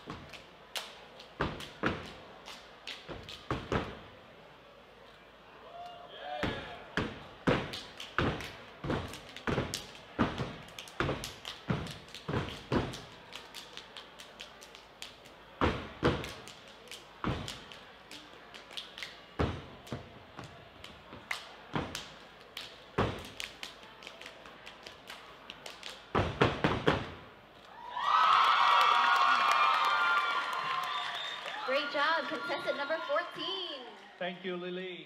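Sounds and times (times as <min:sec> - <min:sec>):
stomping clapping and body slapping: 0:07.0 - 0:27.2.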